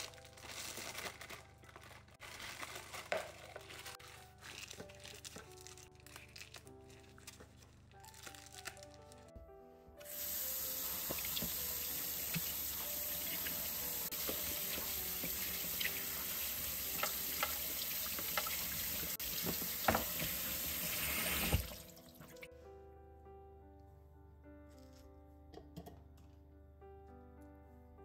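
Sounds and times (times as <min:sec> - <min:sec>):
tap water splashing: 0:10.8 - 0:22.4.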